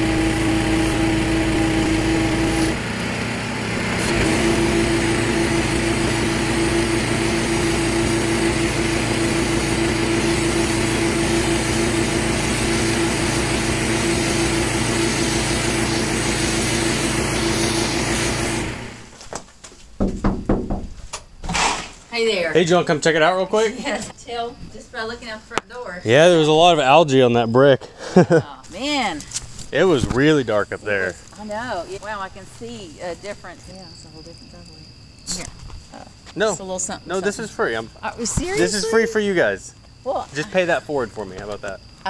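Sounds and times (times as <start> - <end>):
water spray hissing: 0.0 - 2.8, 3.9 - 18.8
pressure washer engine running: 0.0 - 19.1.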